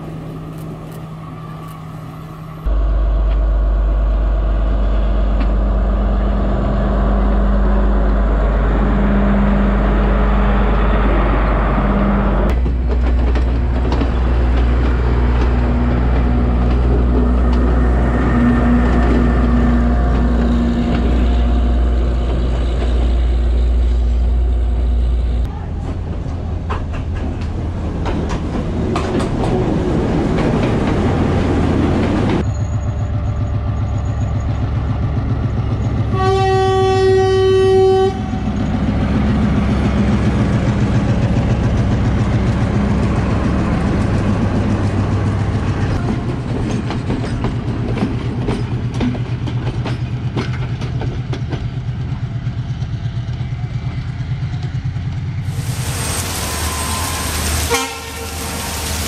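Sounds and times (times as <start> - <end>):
diesel train engine: 0.0 - 59.0
train horn: 36.1 - 38.6, 56.1 - 59.0
wheels clicking over rail joints: 38.6 - 55.4.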